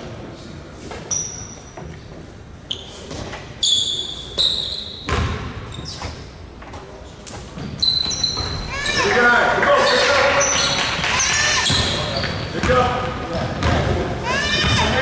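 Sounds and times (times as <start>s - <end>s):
sneaker squeaks on court floor: 0.9s - 6.4s, 7.4s - 15.0s
basketball bouncing: 5.1s - 5.6s, 7.6s - 9.1s, 10.7s - 15.0s.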